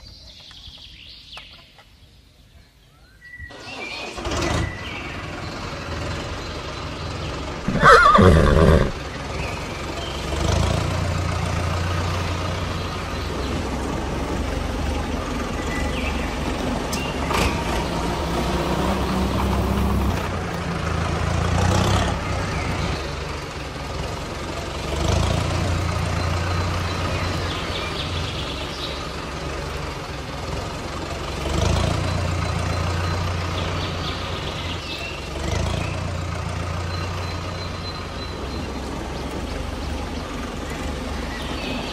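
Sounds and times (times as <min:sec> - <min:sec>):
horse whinnying: 0:07.7 - 0:09.0.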